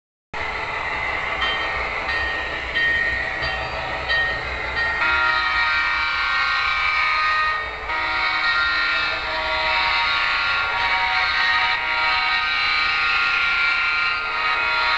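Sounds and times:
model locomotive engine sound: 0.4s - 14.9s
locomotive horn blasts: 5.0s - 14.9s.

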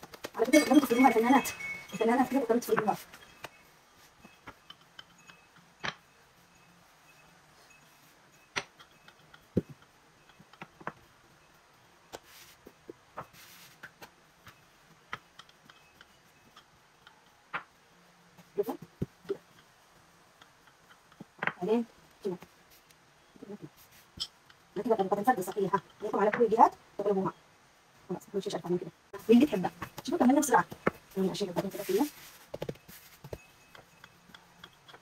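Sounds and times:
hands tapping bread dough: 0.0s - 0.8s, 31.6s - 35.0s.

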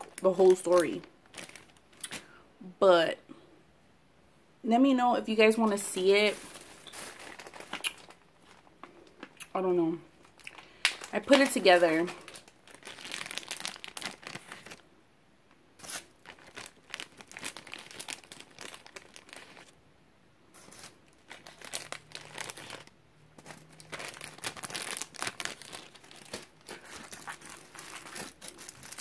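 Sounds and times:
paper and foil wrapper rustling: 0.0s - 2.3s, 5.6s - 9.4s, 10.2s - 14.8s, 15.8s - 19.8s, 20.5s - 29.0s
plastic bag crinkling: 0.0s - 2.3s, 5.6s - 14.8s, 15.8s - 19.8s, 20.6s - 29.0s.

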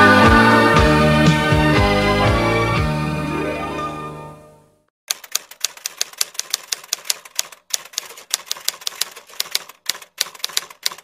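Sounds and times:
typewriter key clacks: 5.1s - 11.0s.

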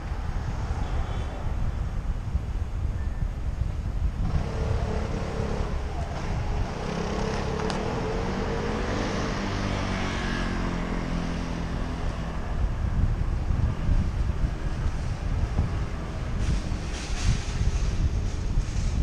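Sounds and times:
wind on microphone: 0.0s - 19.0s
car engines passing: 4.1s - 18.8s.

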